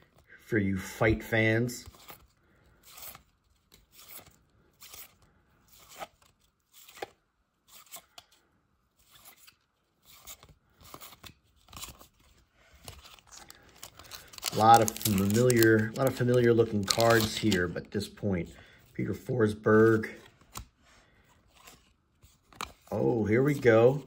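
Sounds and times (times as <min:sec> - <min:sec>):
trading cards sliding: 0:01.8 - 0:08.4, 0:09.0 - 0:17.8.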